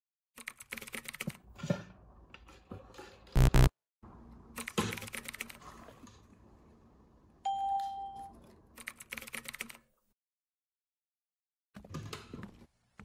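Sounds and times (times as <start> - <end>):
short electronic beep: 3.4 - 3.7.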